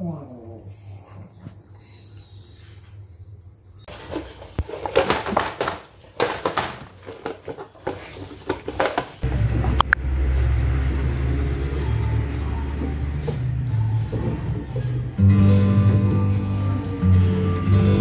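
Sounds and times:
low music bed: 9.2s - 18.0s.

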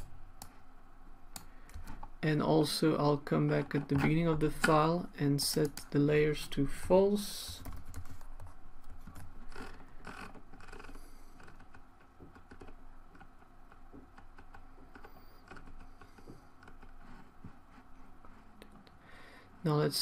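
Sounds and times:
faint steady hum: 0.0s - 20.0s
keyboard and mouse clicks: 7.5s - 17.3s.

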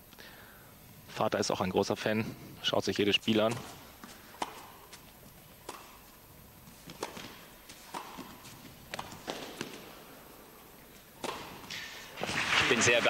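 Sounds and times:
tennis ball hit and bouncing: 3.3s - 13.0s.

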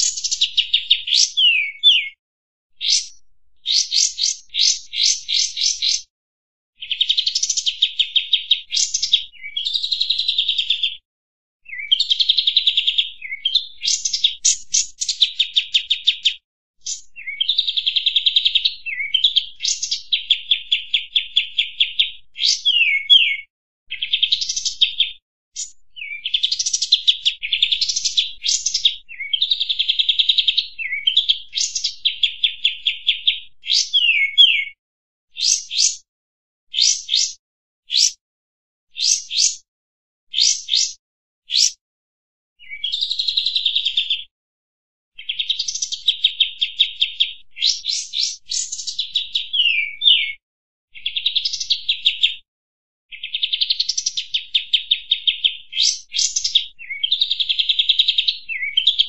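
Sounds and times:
bird singing rattling trills: 0.0s - 2.1s, 2.8s - 6.1s, 6.8s - 10.6s, 11.7s - 16.2s, 16.8s - 23.4s, 35.4s - 36.0s, 36.8s - 37.4s, 40.4s - 41.0s.

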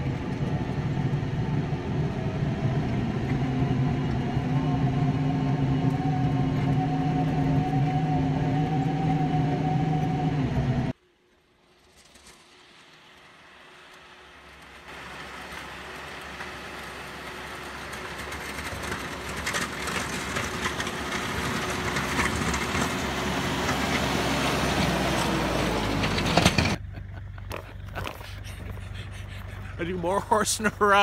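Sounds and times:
tractor diesel engine passing: 0.0s - 11.0s, 12.0s - 31.0s
blade plowing snow: 11.7s - 31.0s.

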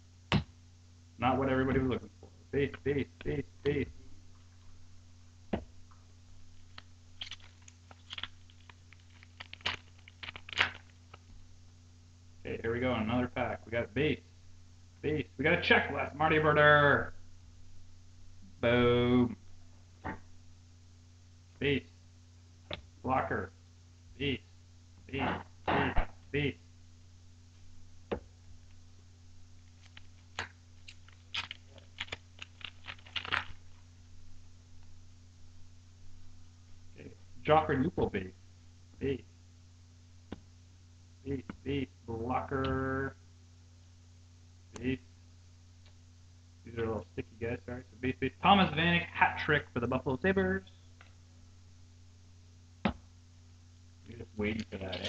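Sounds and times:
steady low hum: 0.0s - 55.0s
foil wrapper crinkling and tearing: 6.5s - 11.3s, 29.6s - 33.9s
cards being handled: 6.5s - 11.4s, 29.6s - 33.8s.

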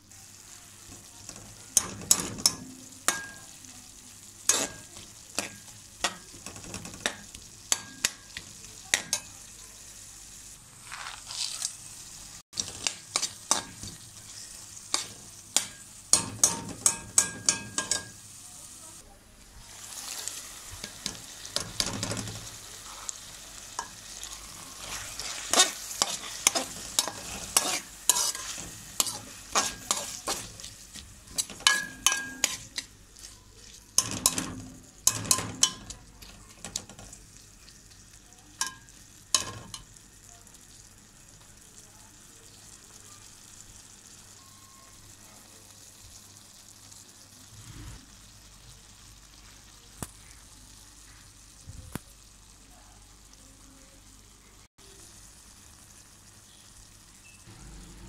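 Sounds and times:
frying sizzle: 0.0s - 58.0s
metal spoon scraping a pan: 1.3s - 3.5s, 4.4s - 9.4s, 12.6s - 18.2s, 20.8s - 37.2s.

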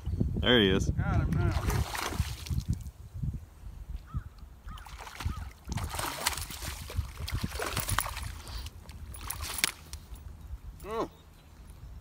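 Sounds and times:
fish thrashing and splashing: 1.5s - 2.7s, 4.8s - 10.0s.

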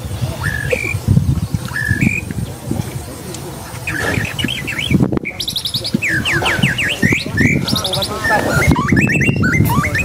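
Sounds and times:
birds chirping and whistling: 0.0s - 2.6s, 3.7s - 10.0s
low rumbling noise: 0.0s - 10.0s.

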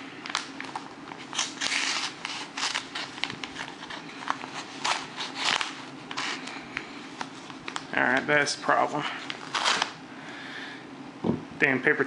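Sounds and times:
knife slitting paper envelope: 0.2s - 6.6s, 9.3s - 10.0s.

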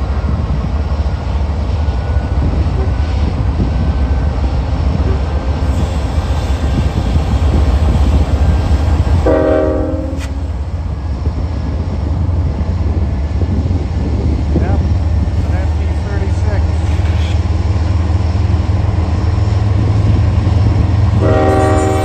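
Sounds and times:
diesel locomotives rumbling: 0.0s - 22.0s
train passing: 0.0s - 22.0s
train horn blast: 9.2s - 10.5s, 21.2s - 22.0s.

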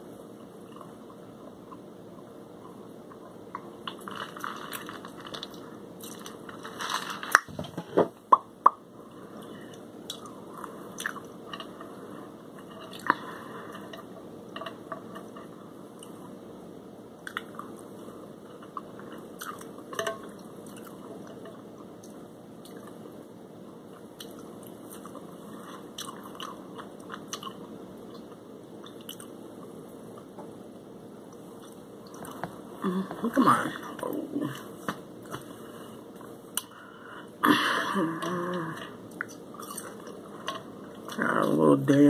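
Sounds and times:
person chewing and crunching: 3.8s - 7.5s, 9.4s - 11.8s, 17.2s - 17.9s, 18.5s - 21.1s, 24.2s - 29.3s, 38.2s - 41.2s.

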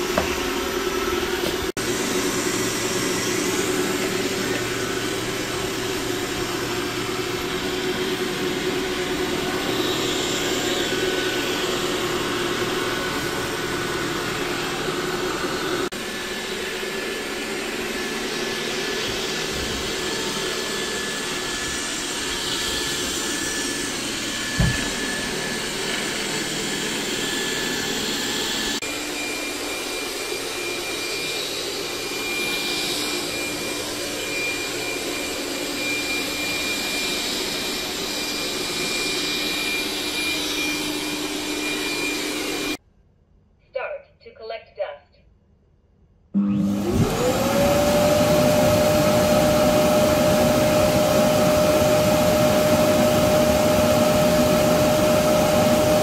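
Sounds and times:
robot vacuum motor whine: 0.0s - 42.8s, 46.4s - 56.0s
short thump: 24.6s - 25.0s.

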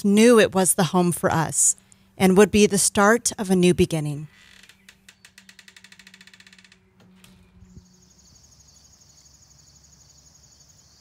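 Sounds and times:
high-pitched buzz of crickets: 5.4s - 11.0s.

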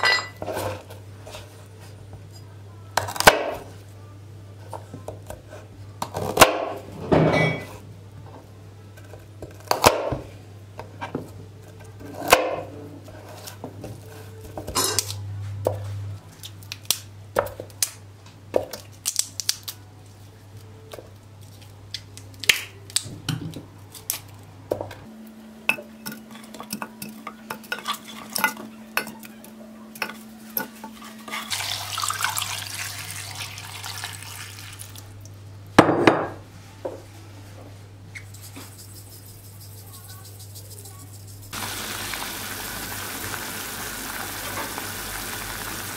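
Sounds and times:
utensils clinking against steel pot: 25.7s - 29.4s
running water hiss: 41.6s - 45.9s.

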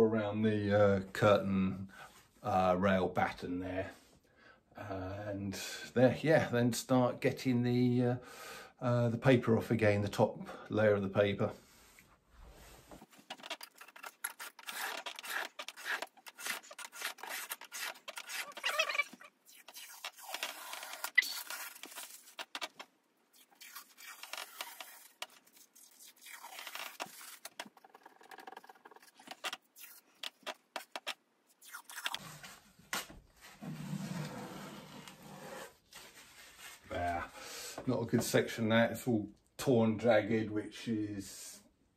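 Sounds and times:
metal scraper scraping wallpaper: 13.0s - 22.8s.

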